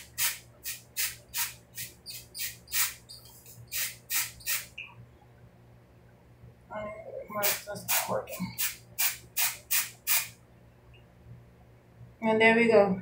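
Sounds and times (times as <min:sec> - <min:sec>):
spray bottle hissing bursts: 0:00.0 - 0:04.8, 0:07.4 - 0:10.4.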